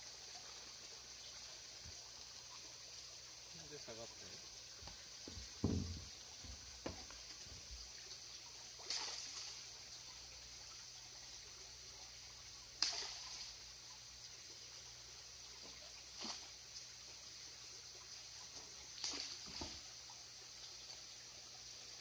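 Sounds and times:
running water trickling: 0.0s - 22.0s
dull knock: 5.2s - 7.1s
water splashing: 5.3s - 10.2s, 12.7s - 13.9s, 15.7s - 16.6s, 18.5s - 20.1s.

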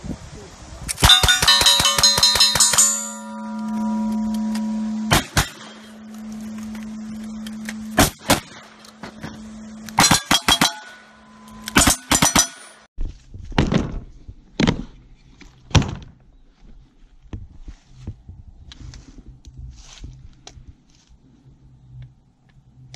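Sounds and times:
gunshots with metallic ring: 1.0s - 6.0s, 10.0s - 12.9s.

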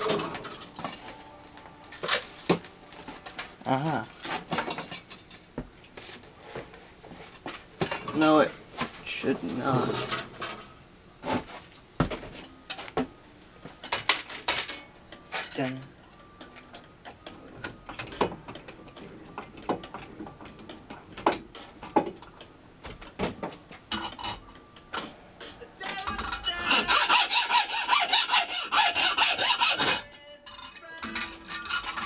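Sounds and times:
hacksaw rasping sawing strokes: 26.4s - 30.1s, 31.5s - 32.0s.

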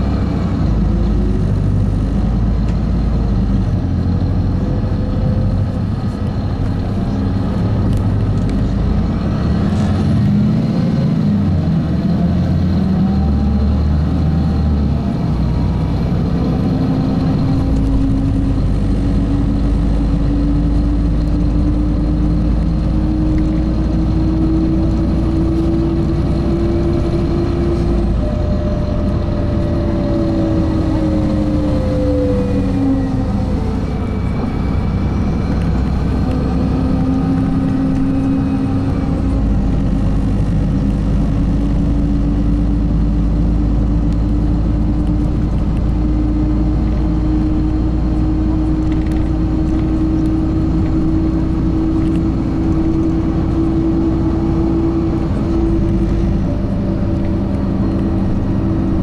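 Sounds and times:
bus engine drone with whine: 0.0s - 59.0s.

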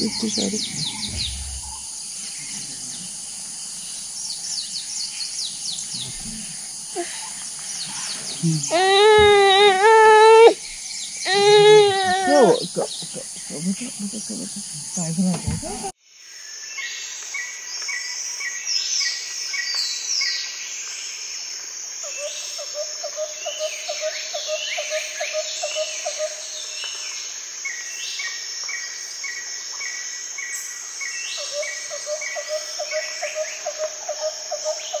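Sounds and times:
birds whistling: 0.0s - 2.6s
low pulsing bird call: 0.0s - 3.2s
high insect drone: 0.0s - 35.0s.

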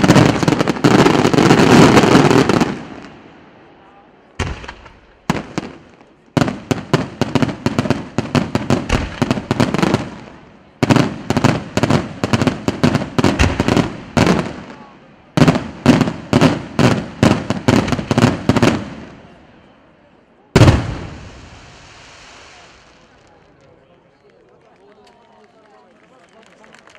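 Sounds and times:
fireworks bursting with loud bangs: 0.0s - 3.6s, 4.4s - 19.4s, 20.5s - 23.4s.

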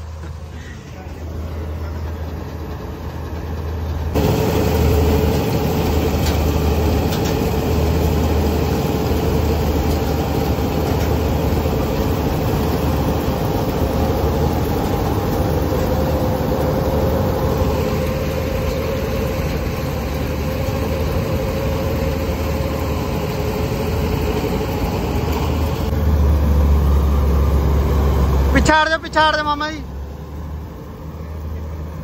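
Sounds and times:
combine harvester engine drone: 0.0s - 32.0s.

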